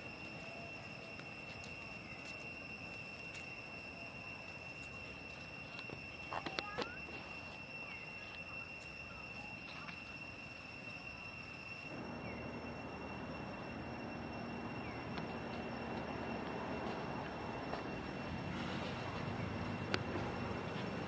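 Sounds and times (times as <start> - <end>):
faint low hum: 0.0 - 21.0
thin high whine: 0.0 - 21.0.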